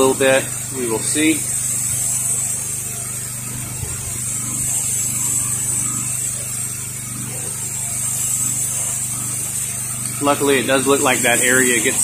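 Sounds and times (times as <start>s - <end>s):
pressure washer motor hum: 0.0s - 12.0s
water spray hissing on siding: 0.0s - 12.0s.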